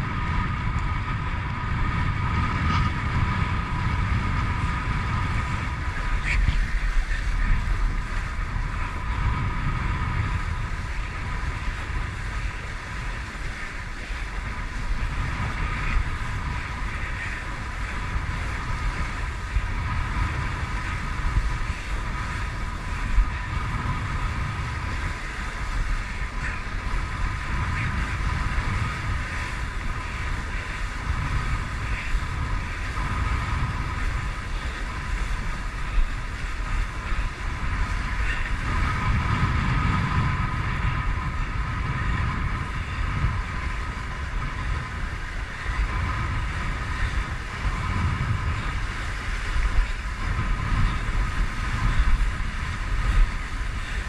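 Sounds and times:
water rushing and slapping: 0.0s - 54.0s
wind buffeting microphone: 0.0s - 54.0s.

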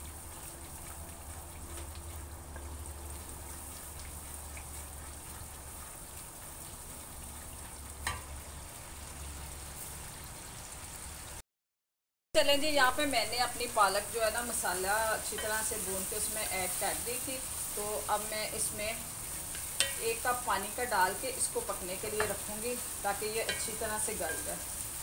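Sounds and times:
spice paste sizzling in a wok: 0.0s - 11.4s, 12.4s - 25.0s.

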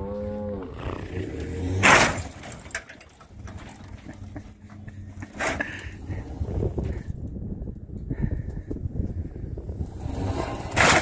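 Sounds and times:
cow mooing: 0.0s - 1.8s
truck engine under load: 0.0s - 11.0s.

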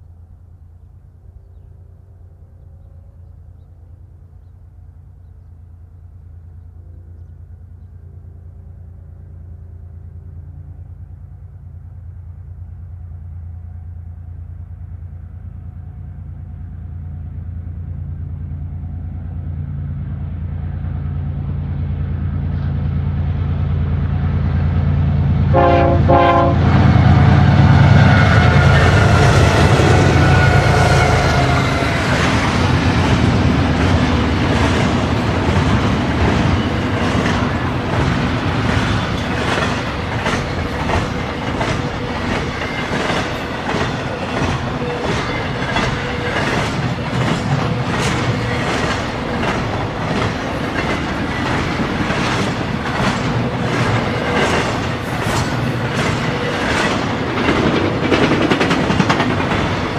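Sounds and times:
locomotive engine rumble: 0.0s - 59.9s
train horn: 25.2s - 32.7s
train wheels clicking over rail joints: 28.2s - 59.9s.

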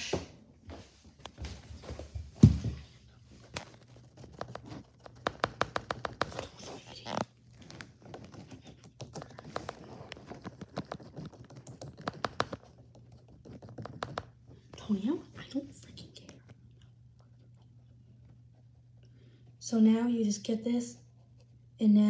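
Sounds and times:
paintbrush tapping on canvas: 5.1s - 6.5s.

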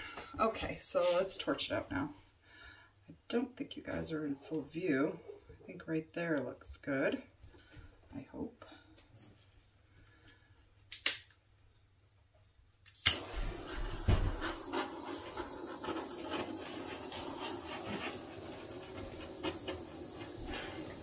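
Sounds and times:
torch lighting with a pop: 12.9s - 21.0s
torch switch click: 13.0s - 13.5s
torch flame hissing: 13.0s - 21.0s.

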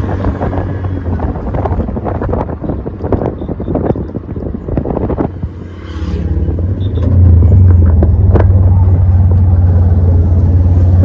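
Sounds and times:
wind buffeting on microphone: 0.0s - 8.9s
low engine drone: 5.5s - 11.0s.

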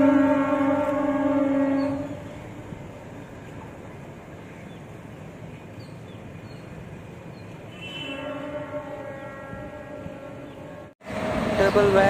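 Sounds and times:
locomotive horn blast: 0.0s - 2.6s, 7.7s - 12.0s
low rumble of locomotives: 0.0s - 12.0s.

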